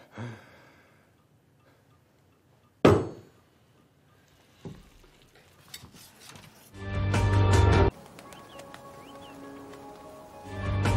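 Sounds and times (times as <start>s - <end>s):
knock on dinner table: 2.8s - 3.3s.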